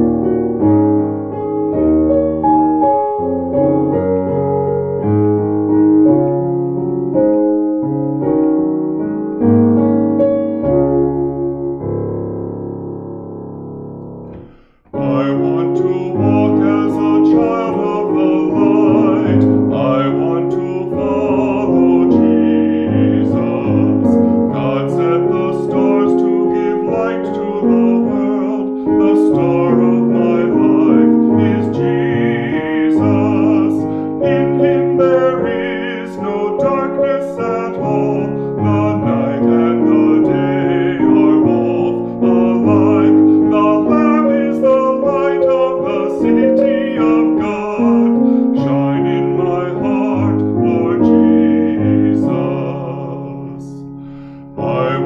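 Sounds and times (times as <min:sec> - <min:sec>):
keyboard chords: 0:00.0 - 0:55.0
man singing a hymn: 0:14.4 - 0:55.0.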